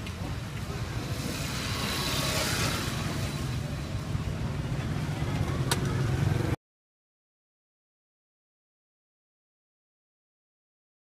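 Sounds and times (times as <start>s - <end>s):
street traffic rumble: 0.0s - 6.6s.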